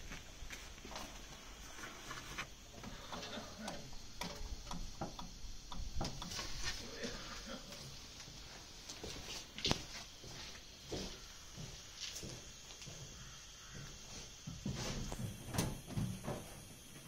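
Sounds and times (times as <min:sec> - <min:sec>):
hands clicking and tapping parts: 0:02.8 - 0:06.6.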